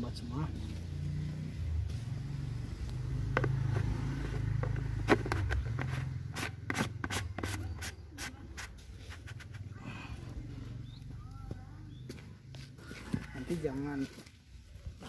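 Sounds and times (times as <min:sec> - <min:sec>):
plastic screw cap clicking and scraping: 0:03.3 - 0:07.9.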